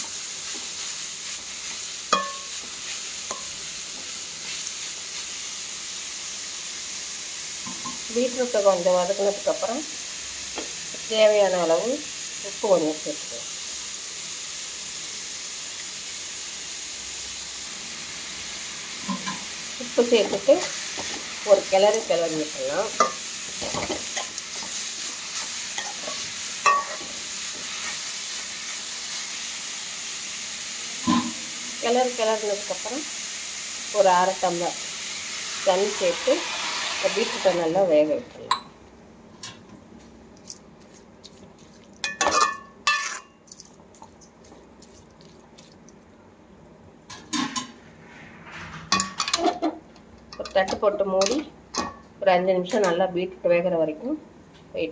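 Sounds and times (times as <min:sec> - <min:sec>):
vegetables sizzling in oil: 0:00.0 - 0:46.1
metal spoon stirring and scraping: 0:01.3 - 0:03.5, 0:22.9 - 0:27.1, 0:40.8 - 0:45.8
spoon clinking against pan: 0:02.1 - 0:02.5, 0:26.6 - 0:27.0
spoon scraping metal pan: 0:42.0 - 0:43.3.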